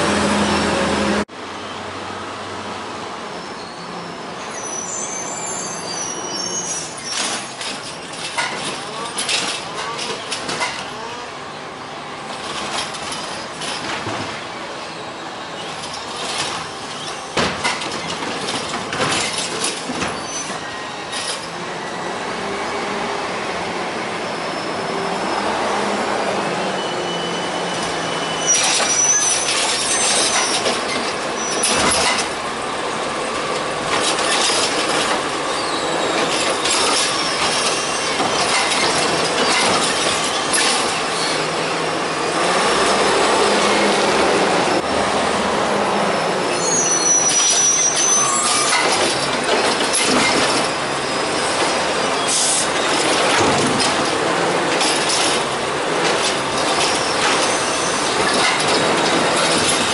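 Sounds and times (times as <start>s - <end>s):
brief high squeal: 3.4s - 7.7s, 24.2s - 25.5s, 26.7s - 30.7s, 35.5s - 38.7s, 46.5s - 49.0s
metal clanks and bangs: 7.1s - 10.9s, 15.6s - 21.5s, 27.8s - 32.4s, 33.8s - 35.4s, 36.2s - 41.1s, 47.3s - 50.8s, 51.5s - 59.9s
garbage truck engine running: 26.8s - 59.9s.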